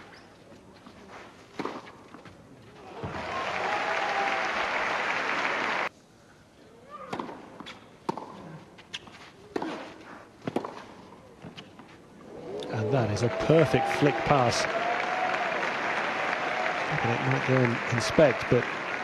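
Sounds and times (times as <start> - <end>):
crowd applauding: 3.1 - 5.9, 12.7 - 19.0
tennis racket striking ball: 8.1 - 8.4, 9.5 - 10.9.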